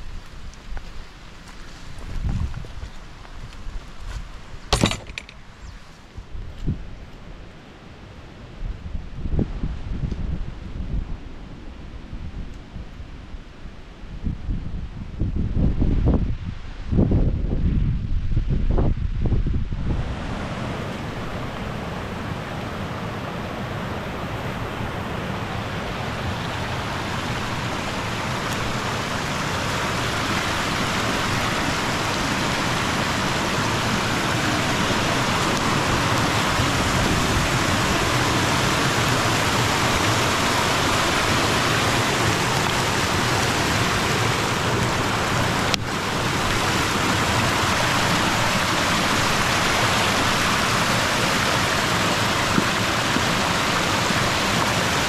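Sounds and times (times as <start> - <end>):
stream rushing over rocks: 19.8 - 55.0.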